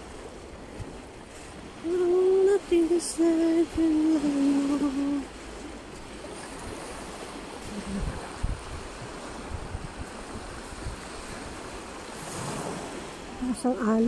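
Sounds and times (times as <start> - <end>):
waves washing on sandy shore: 0.0 - 14.0
wind buffets on microphone: 5.9 - 13.3.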